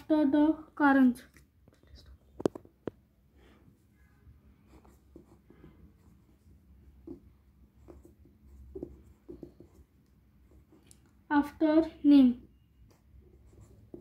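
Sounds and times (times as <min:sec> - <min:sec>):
pencil scratching on paper: 0:04.6 - 0:10.9, 0:12.4 - 0:14.0.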